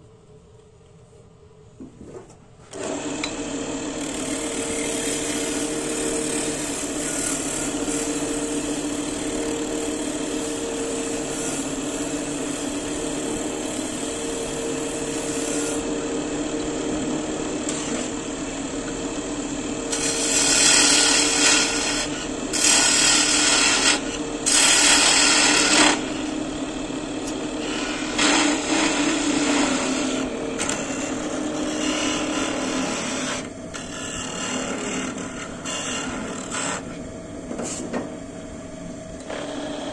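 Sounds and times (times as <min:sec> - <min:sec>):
woodworking machine humming: 0:02.7 - 0:37.5, 0:38.1 - 0:39.9
machine cutting into wood: 0:19.9 - 0:26.4, 0:27.2 - 0:33.4.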